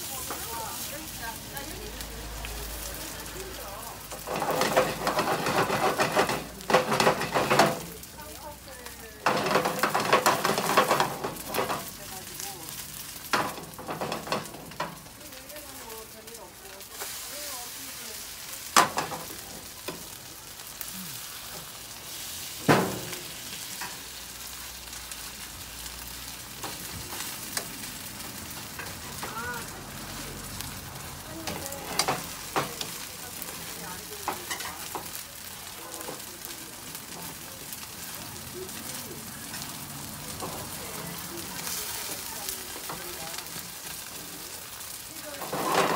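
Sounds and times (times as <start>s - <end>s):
pancake sizzling in hot oil: 0.0s - 45.9s
metal spatula scraping pan: 4.1s - 7.8s, 45.4s - 45.9s.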